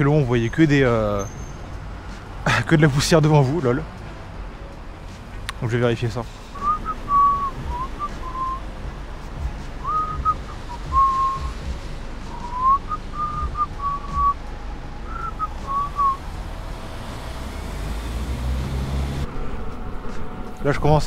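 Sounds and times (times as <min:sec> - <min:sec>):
person whistling a tune: 0:06.6 - 0:08.6, 0:09.8 - 0:11.7, 0:12.3 - 0:14.4, 0:15.1 - 0:16.2.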